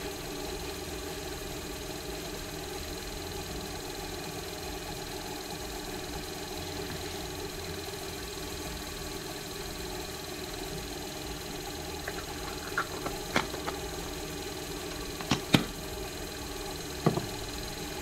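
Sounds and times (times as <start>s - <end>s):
lathe motor hum and whine: 0.0s - 18.0s
tools knocking on wooden workbench: 12.1s - 13.9s, 15.2s - 15.8s, 17.0s - 17.4s.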